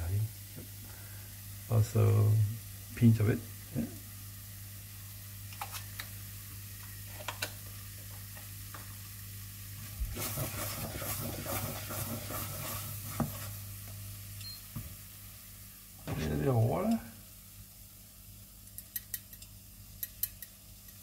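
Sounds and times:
faint sizzle: 0.0 - 21.0
wooden spatula scraping a pan: 9.9 - 13.6.

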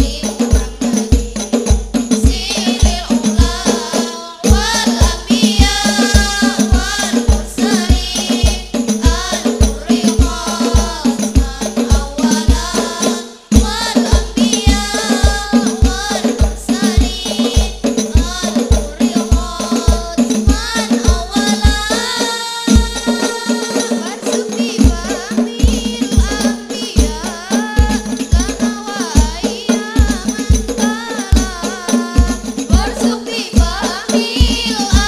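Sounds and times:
frame drums: 0.0 - 35.0
girls singing into microphones: 0.0 - 35.0
jingling percussion: 0.0 - 35.0
deep drum beat: 4.5 - 21.9, 22.7 - 35.0.

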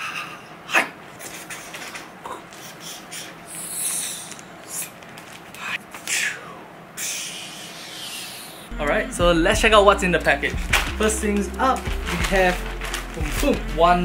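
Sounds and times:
packaging rustling and tearing: 4.2 - 6.1, 10.3 - 14.0.

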